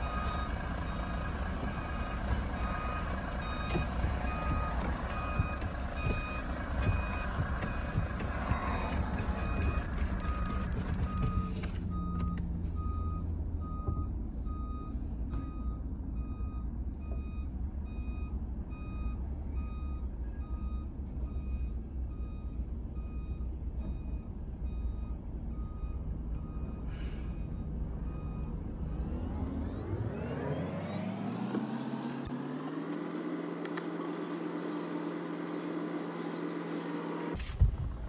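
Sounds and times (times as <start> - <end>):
truck reverse alarm beeping: 0.0 - 37.4
diesel engine rumble: 0.0 - 38.0.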